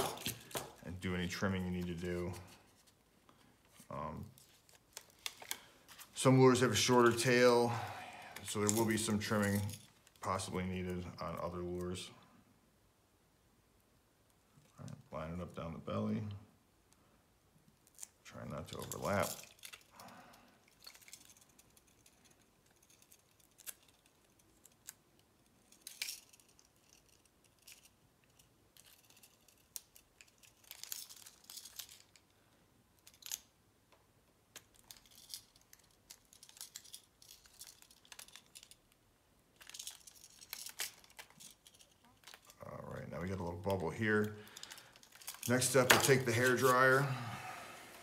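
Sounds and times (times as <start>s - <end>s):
rustling of plastic film: 34.6s - 47.1s.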